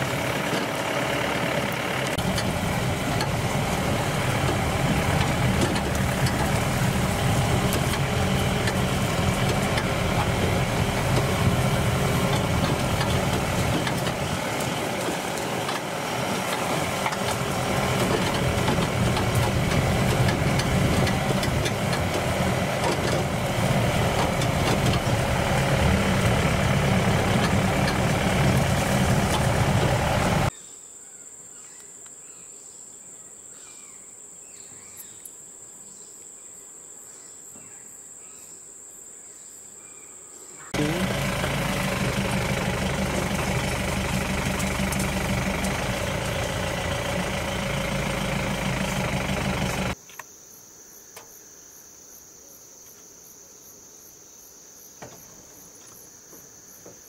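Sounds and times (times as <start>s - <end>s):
vehicle engine drone: 0.0s - 30.5s, 40.7s - 50.0s.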